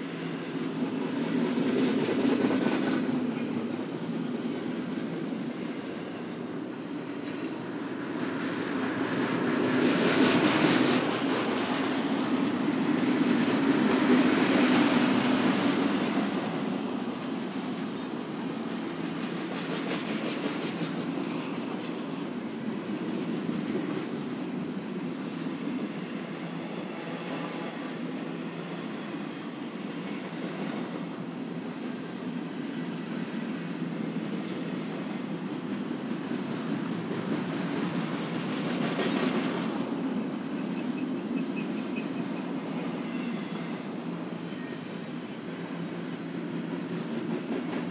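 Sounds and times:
train wheels rumbling on rail: 0.0 - 47.9
faint rail clicks: 7.1 - 7.6, 30.2 - 31.0.

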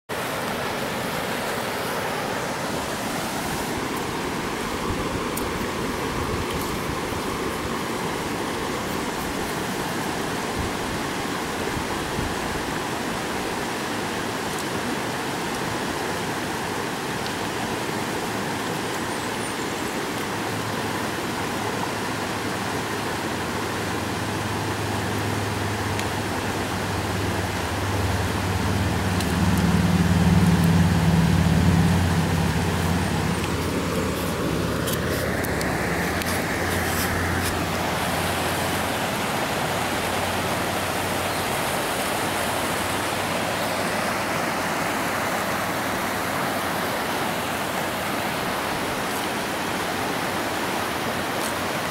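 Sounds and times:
rocky stream rushing: 0.1 - 51.9
vehicle engine hum: 23.5 - 46.5
rising whine: 26.9 - 38.8.

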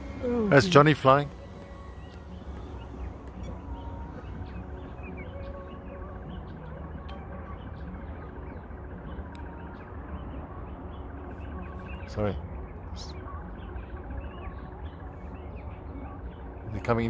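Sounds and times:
faint high whine: 0.0 - 17.0
small birds chirping: 0.0 - 17.0
steady low rumble: 0.0 - 17.0.

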